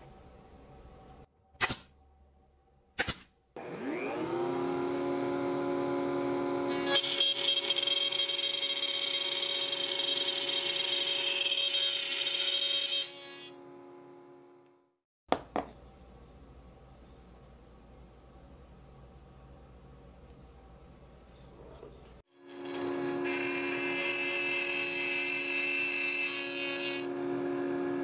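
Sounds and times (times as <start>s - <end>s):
router motor whining: 3.6s - 8.3s
router bit cutting wood: 3.6s - 13.7s.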